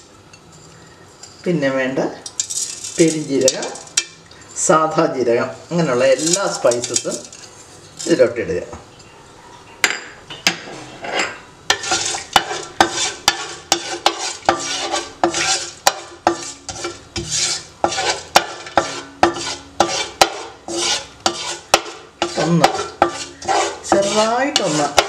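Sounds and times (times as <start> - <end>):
spices sizzling in oil: 2.2 - 4.7, 11.7 - 25.0.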